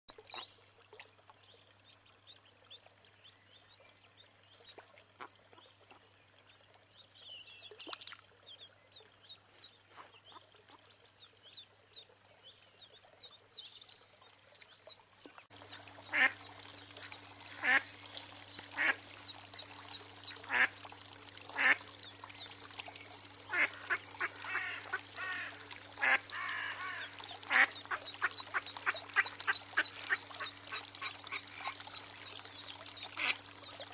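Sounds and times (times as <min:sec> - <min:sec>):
ducklings peeping: 0:15.2 - 0:20.8, 0:21.6 - 0:33.9.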